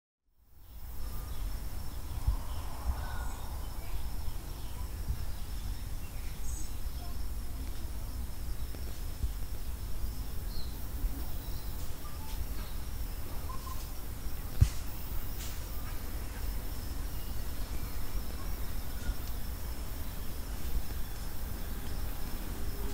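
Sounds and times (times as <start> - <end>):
high insect drone: 0.5 - 22.9
low rumble: 1.5 - 6.9
short bird chirps: 13.4 - 13.9
sharp thump: 14.6 - 15.6.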